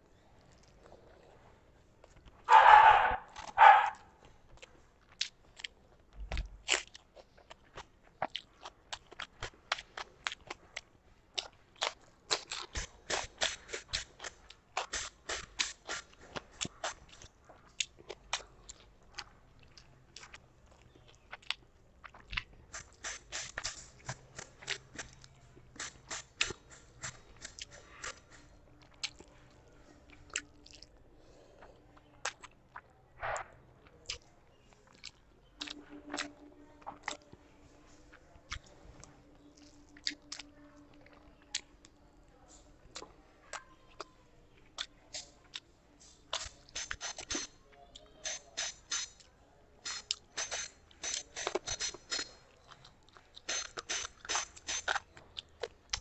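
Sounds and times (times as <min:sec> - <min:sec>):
person chewing food: 0:00.1 - 0:33.0, 0:33.8 - 0:42.1, 0:42.7 - 0:56.0
wet smacking and crunching clicks: 0:03.3 - 0:29.4, 0:32.0 - 0:37.3, 0:42.9 - 0:56.0.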